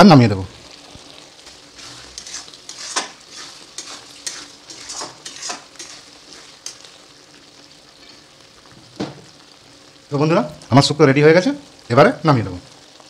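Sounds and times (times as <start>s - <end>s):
spatula scraping metal pan: 1.8s - 6.9s.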